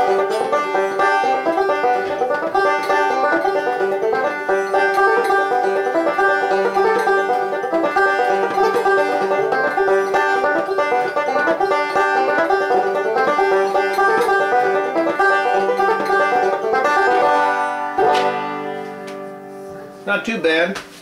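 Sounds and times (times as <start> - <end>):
banjo fingerpicked: 0.0 - 20.3.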